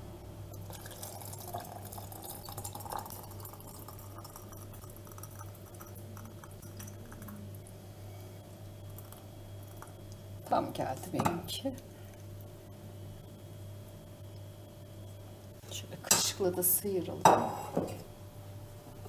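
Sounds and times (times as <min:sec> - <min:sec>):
thick sauce pouring into jars: 0:00.6 - 0:07.3.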